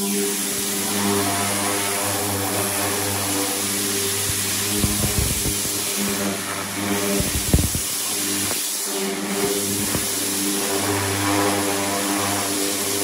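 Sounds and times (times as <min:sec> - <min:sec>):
pressure washer jet hissing: 0:00.1 - 0:13.0
machine drone: 0:00.9 - 0:08.6.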